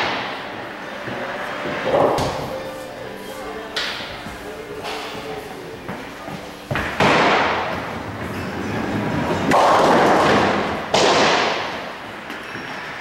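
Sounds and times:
bowling balls thudding on wooden lanes: 0.0s - 2.6s, 5.8s - 8.4s, 9.0s - 12.7s.

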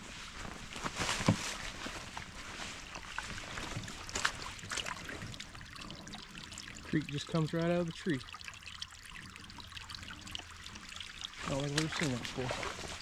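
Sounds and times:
creek trickling: 0.4s - 13.0s.

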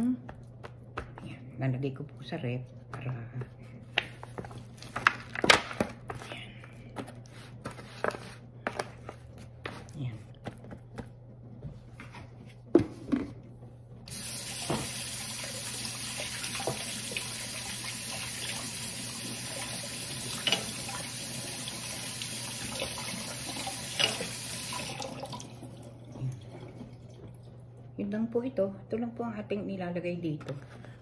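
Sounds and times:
tap running into sink: 14.4s - 15.2s, 16.5s - 17.2s.

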